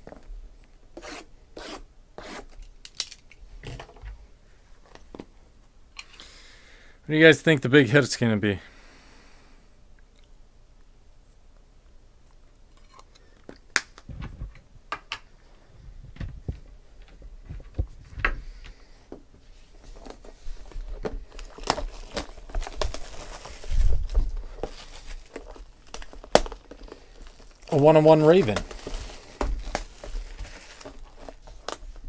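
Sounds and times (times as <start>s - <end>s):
plastic shrink wrap crinkling: 19.8s - 32.0s.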